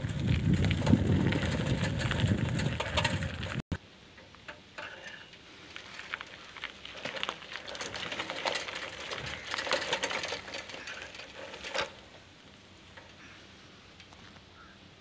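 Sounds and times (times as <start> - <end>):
footsteps crunching on gravel: 5.6 - 11.5.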